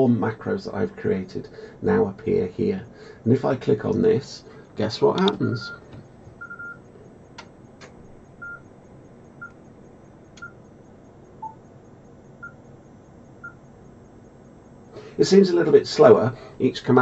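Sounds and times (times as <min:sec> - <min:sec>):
sharp clicks: 0:05.1 - 0:06.0, 0:07.3 - 0:08.0
short electronic beeps: 0:10.4 - 0:14.9.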